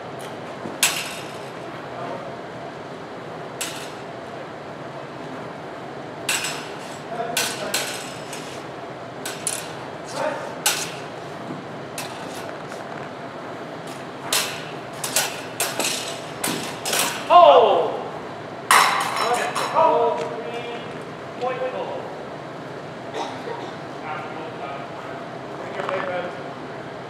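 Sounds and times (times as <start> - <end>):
room noise in a large hall: 0.0 - 27.0
sword blades clashing: 10.6 - 11.1.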